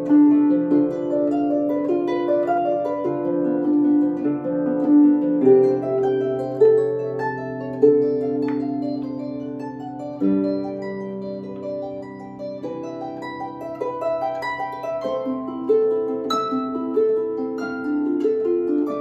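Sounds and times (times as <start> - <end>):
solo harp playing: 0.0 - 19.0.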